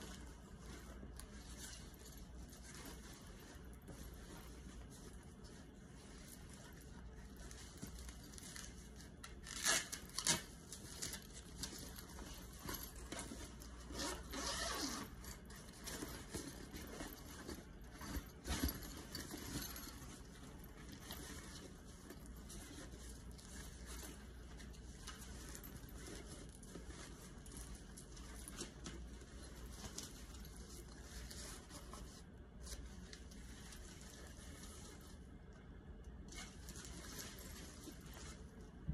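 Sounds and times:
nylon fabric rustling: 0.0 - 38.9
zipper being pulled: 12.6 - 15.4.

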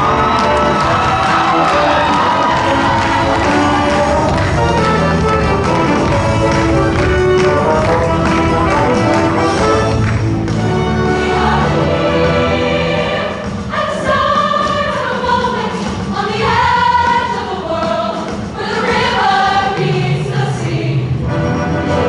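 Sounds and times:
band playing low notes: 0.0 - 13.2
women's choir singing: 10.8 - 21.2.

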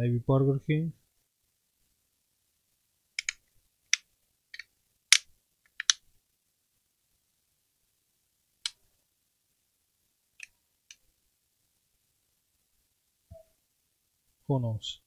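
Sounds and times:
sharp clicks and light taps: 3.2 - 6.0.

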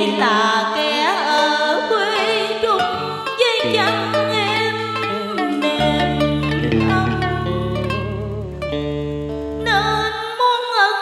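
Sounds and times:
plucked guitar bending notes: 2.2 - 10.2
low musical backing: 2.8 - 10.2.

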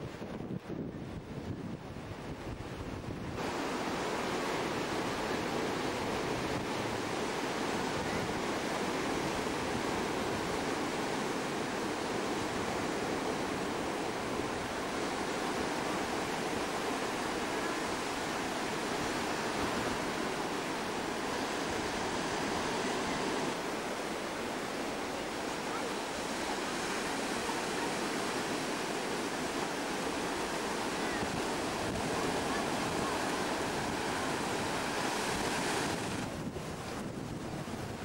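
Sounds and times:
wind buffeting microphone: 0.0 - 4.1, 30.9 - 38.0
sea waves breaking on beach: 3.3 - 38.0.

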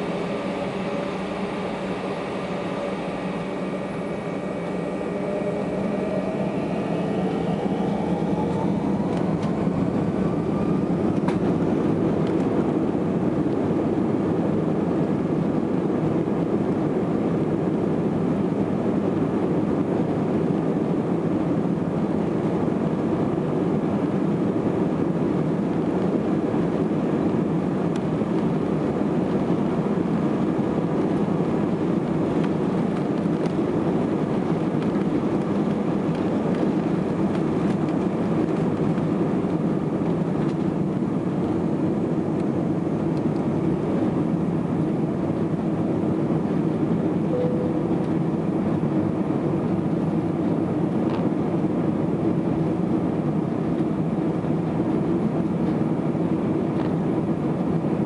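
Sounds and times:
jet engines spooling up: 0.0 - 14.6.

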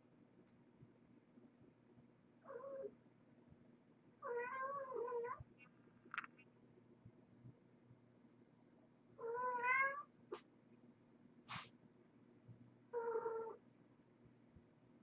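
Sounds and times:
kitten meowing: 9.2 - 10.0.

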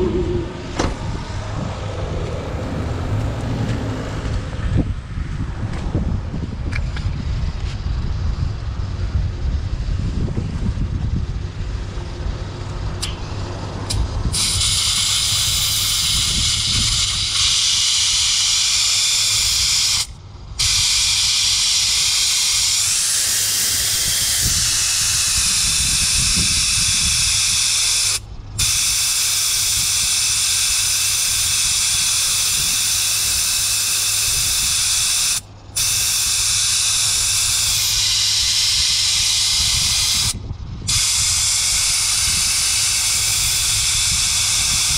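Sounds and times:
air hissing from tyre valve: 13.0 - 44.9.

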